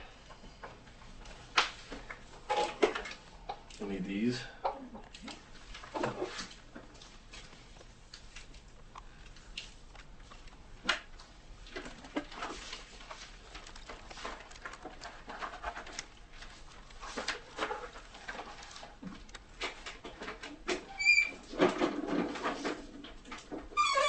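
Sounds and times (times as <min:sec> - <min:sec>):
rubbing and rustling of gloves: 0:05.1 - 0:20.6.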